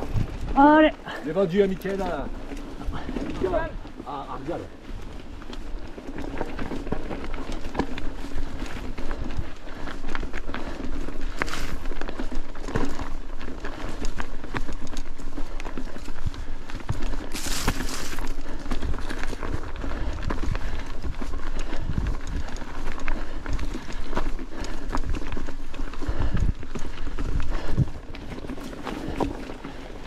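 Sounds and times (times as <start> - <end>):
bike rattling: 0.0 - 30.0
tyres crunching on stones: 9.8 - 30.0.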